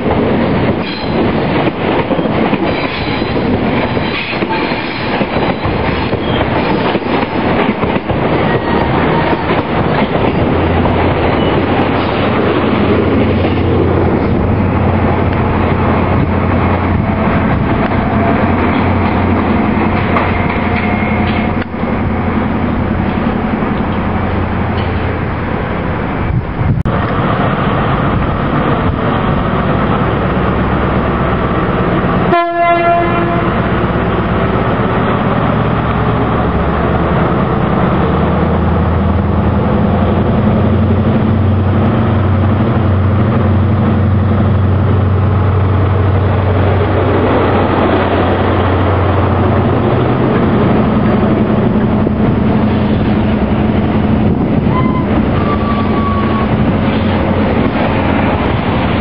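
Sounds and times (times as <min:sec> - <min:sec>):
diesel train engine drone: 0:00.0 - 0:59.0
train horn: 0:04.1 - 0:05.0, 0:32.2 - 0:33.7, 0:54.7 - 0:56.6.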